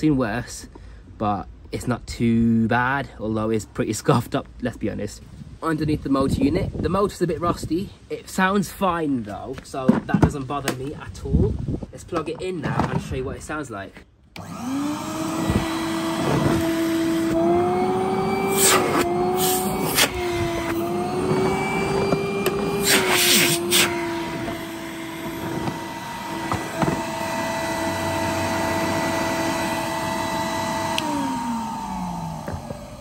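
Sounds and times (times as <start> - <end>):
vacuum cleaner motor running: 14.4 - 33.0.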